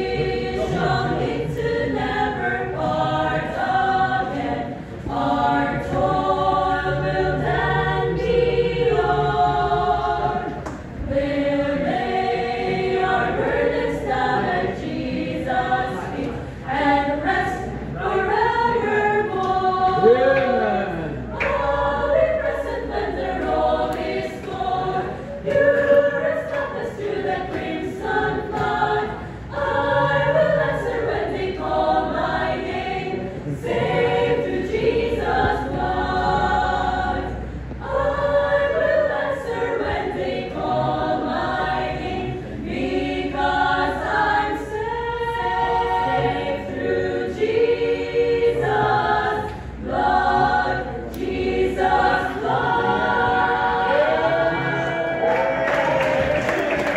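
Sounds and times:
women's choir singing a hymn: 0:00.0 - 0:56.9.

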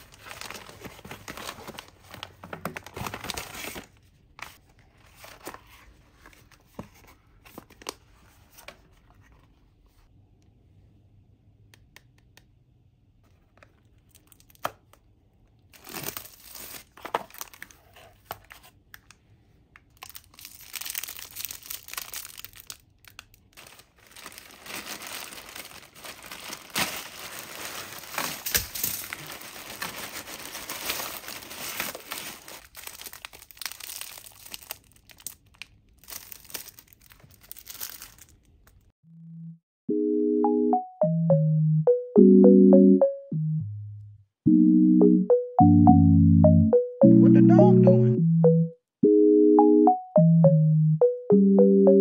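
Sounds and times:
paper bag crinkling and tearing: 0:00.0 - 0:04.0, 0:15.7 - 0:18.3, 0:20.0 - 0:38.9
plastic bag tearing and rustling: 0:00.0 - 0:04.0, 0:15.8 - 0:18.2, 0:20.0 - 0:38.9.

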